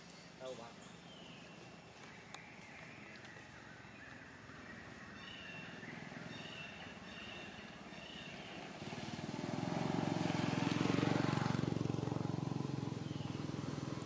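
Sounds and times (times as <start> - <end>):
low engine sound: 4.3 - 14.0.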